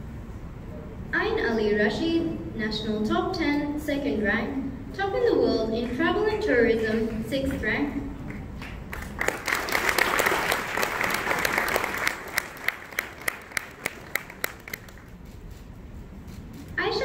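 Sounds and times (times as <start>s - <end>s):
audience applause: 8.3s - 15.1s.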